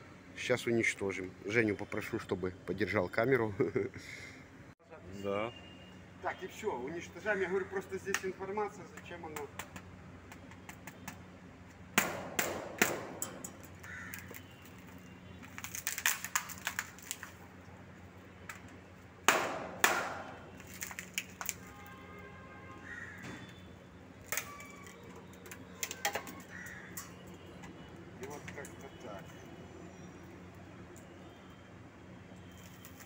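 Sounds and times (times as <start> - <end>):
plastic cracking and snapping: 13.7 - 17.4, 19.9 - 21.7.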